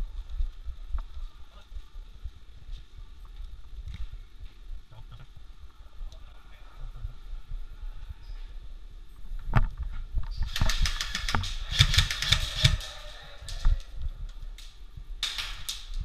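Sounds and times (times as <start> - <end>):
toy guns firing rapid bursts: 10.5 - 13.2.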